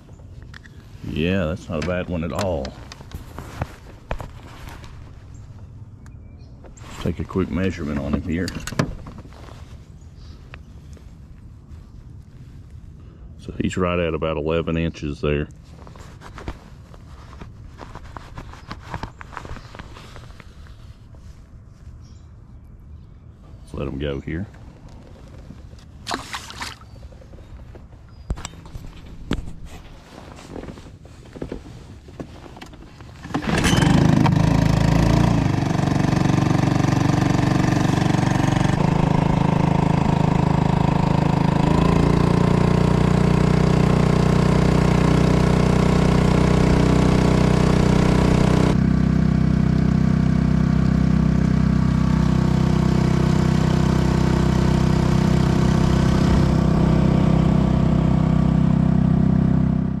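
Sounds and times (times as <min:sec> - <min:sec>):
outboard motor running: 0:00.8 - 0:05.7, 0:07.0 - 0:09.2, 0:33.2 - 1:00.0.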